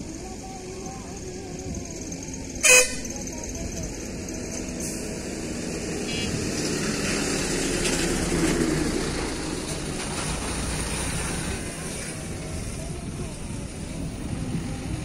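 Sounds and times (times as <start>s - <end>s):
motor engine passing by: 3.5s - 15.0s.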